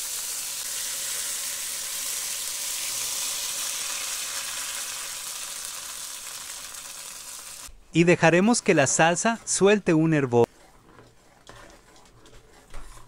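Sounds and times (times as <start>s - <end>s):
sauce sizzling in hot oil: 0.0s - 7.7s.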